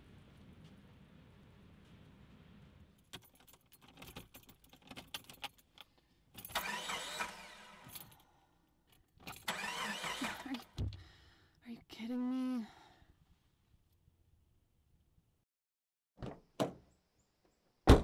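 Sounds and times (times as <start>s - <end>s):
keys jingling: 3.0s - 6.6s.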